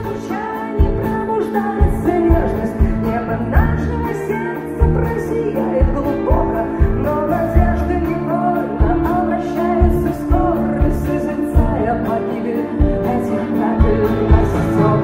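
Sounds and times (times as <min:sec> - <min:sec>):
woman singing: 0:00.0 - 0:15.0.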